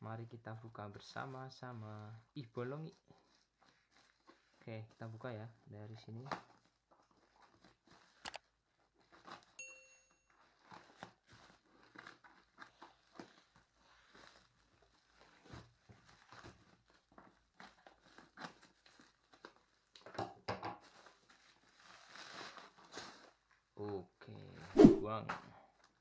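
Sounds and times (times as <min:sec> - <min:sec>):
plastic crinkling: 0:10.3 - 0:20.1, 0:20.8 - 0:23.7.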